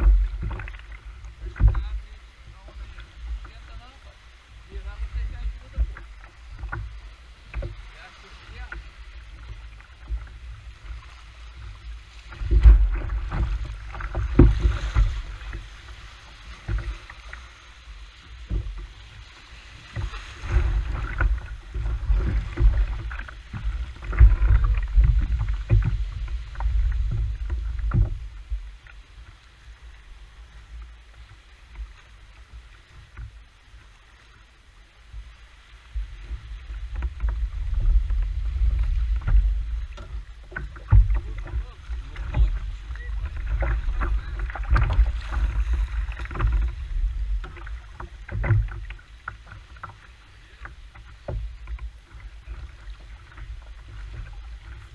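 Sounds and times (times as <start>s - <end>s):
low rumbling microphone noise: 0.0s - 34.0s, 34.8s - 54.9s
knocks against kayak hull: 12.3s - 15.7s, 19.9s - 28.7s, 36.8s - 54.9s.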